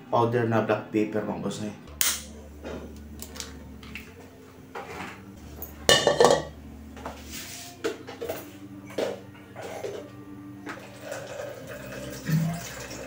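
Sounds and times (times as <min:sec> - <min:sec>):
metal wok clattering on grate: 0:05.9 - 0:06.5.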